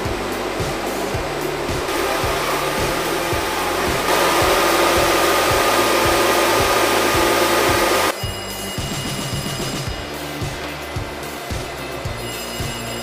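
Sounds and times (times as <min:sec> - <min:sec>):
machine whirring rush: 0:00.0 - 0:08.2
background music beat: 0:00.0 - 0:13.0.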